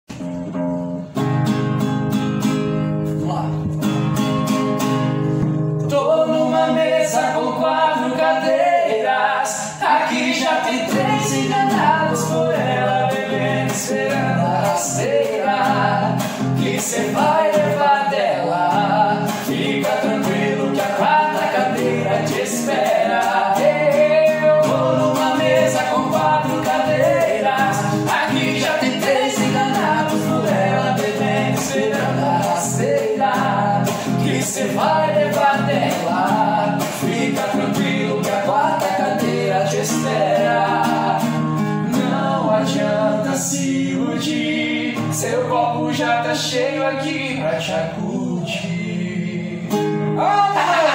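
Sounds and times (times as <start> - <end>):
acoustic guitar strumming: 0.1 - 50.9
two men singing: 5.4 - 50.9.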